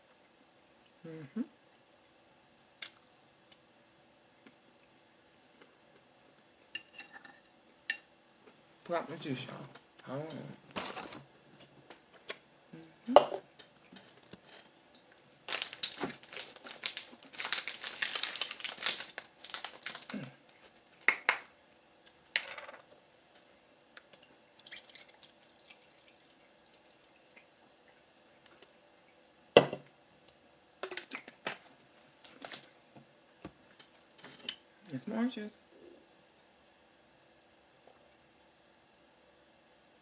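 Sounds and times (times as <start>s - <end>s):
plastic bottle crinkling: 15.5s - 21.5s, 32.2s - 32.7s
juice pouring into glass: 24.6s - 27.4s.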